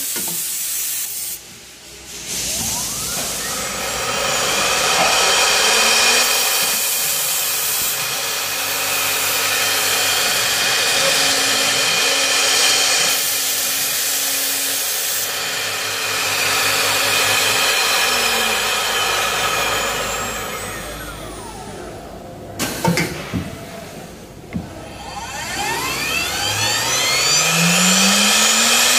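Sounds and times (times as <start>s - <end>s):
hiss of cutting and air: 0.0s - 21.2s, 25.6s - 28.9s
router spindles whining: 2.5s - 22.2s, 24.6s - 28.9s.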